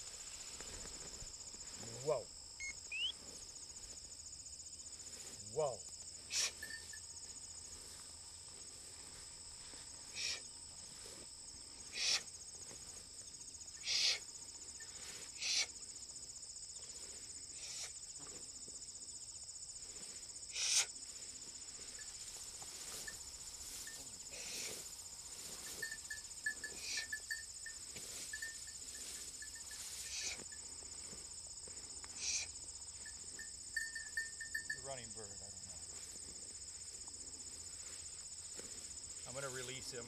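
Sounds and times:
insects chirring: 0:00.0 - 0:40.0
short hissing noises: 0:06.2 - 0:06.8, 0:10.0 - 0:10.5, 0:11.8 - 0:12.4, 0:13.8 - 0:14.3, 0:15.0 - 0:15.8, 0:17.5 - 0:18.1, 0:20.1 - 0:21.0, 0:21.8 - 0:25.9, 0:27.9 - 0:30.6, 0:32.1 - 0:32.6.

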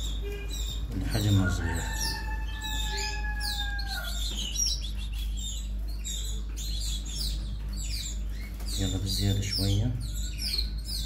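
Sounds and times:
nestlings chirping: 0:00.0 - 0:11.0.

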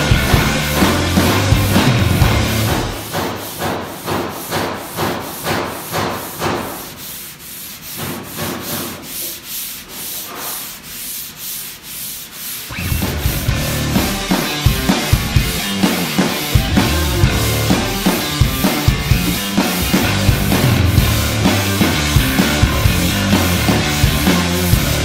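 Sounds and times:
music: 0:00.0 - 0:03.0, 0:12.7 - 0:25.0
sandpaper rasping: 0:06.6 - 0:24.8.

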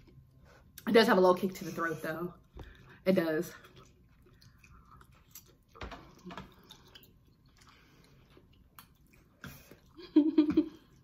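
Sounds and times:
slurping and chewing: 0:02.4 - 0:10.0.

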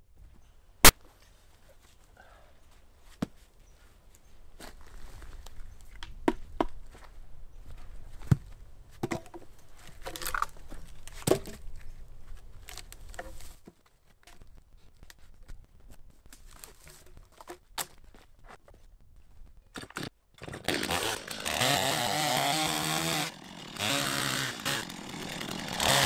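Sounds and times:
brush rustling and crunching: 0:09.5 - 0:19.5
dry branches cracking: 0:20.6 - 0:26.0.

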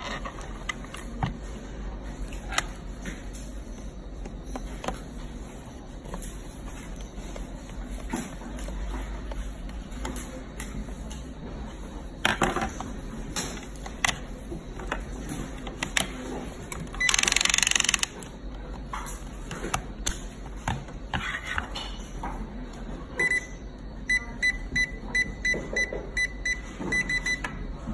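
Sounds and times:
keypad beeps: 0:16.9 - 0:18.1, 0:23.2 - 0:27.5.

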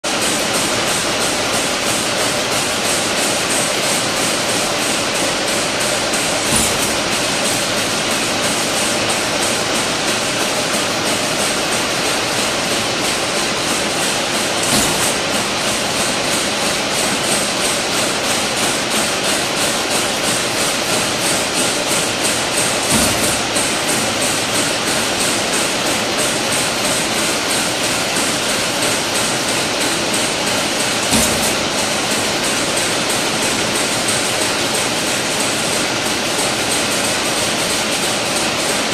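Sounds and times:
loud machine knock: 0:00.1 - 0:38.9
machine metallic clatter: 0:00.1 - 0:38.9.

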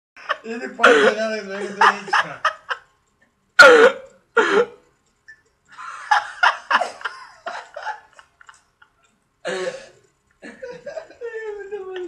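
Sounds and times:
young men laughing: 0:00.2 - 0:02.8, 0:05.7 - 0:09.8, 0:10.4 - 0:12.0.

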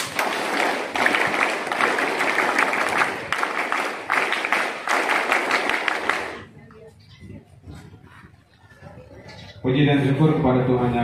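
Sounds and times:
crowd applause: 0:00.0 - 0:06.5.

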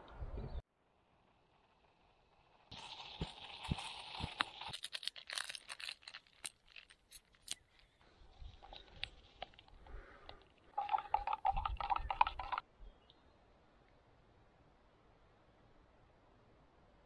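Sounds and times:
coffee sachet wrapper crinkling: 0:02.7 - 0:12.6.

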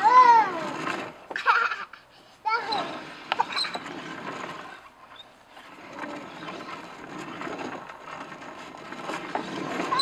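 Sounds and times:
toy turntable whirring and scraping: 0:02.5 - 0:10.0.

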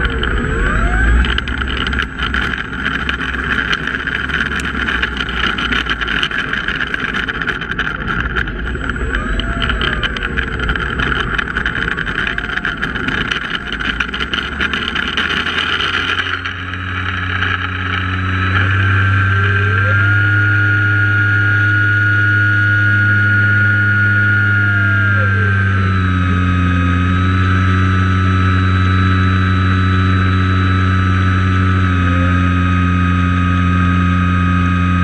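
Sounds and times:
tyre noise: 0:00.0 - 0:20.5
low engine drone: 0:00.0 - 0:35.0
propeller plane engine: 0:00.0 - 0:35.0.

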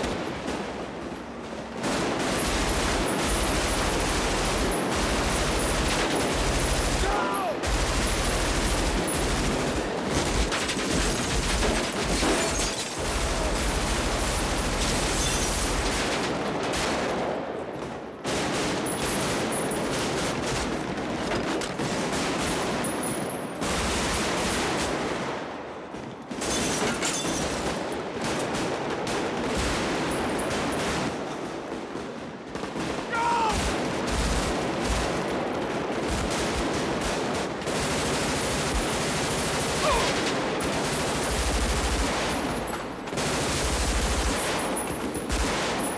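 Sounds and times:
automatic rifle fire: 0:32.5 - 0:45.9.

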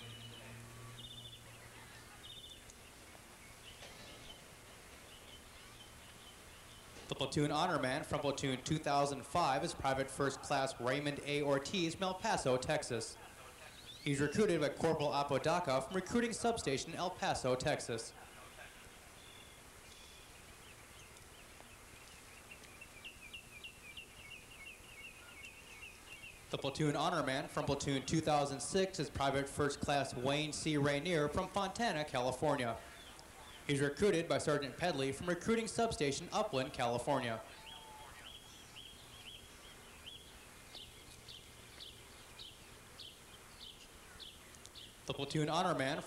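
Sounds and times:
faint bird chirping: 0:00.0 - 0:07.2, 0:13.2 - 0:14.4, 0:18.2 - 0:26.6, 0:32.8 - 0:33.8, 0:37.4 - 0:45.2
low outdoor hiss: 0:00.0 - 0:46.0
low steady hum: 0:00.0 - 0:46.0.

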